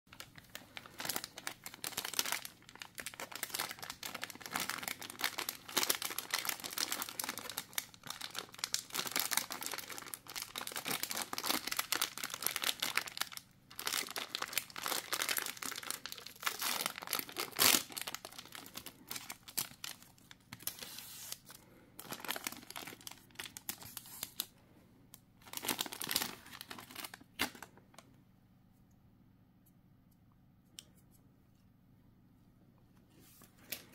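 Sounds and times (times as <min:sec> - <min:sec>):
wrapper crinkling and tearing: 0:00.1 - 0:24.5, 0:25.4 - 0:27.8.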